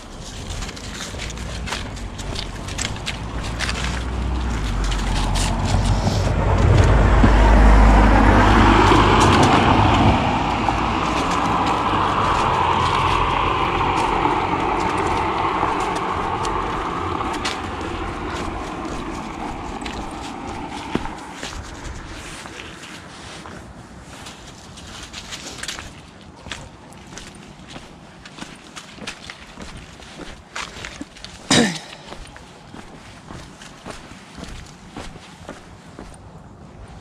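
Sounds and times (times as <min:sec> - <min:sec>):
car driving past: 0:00.7 - 0:22.6.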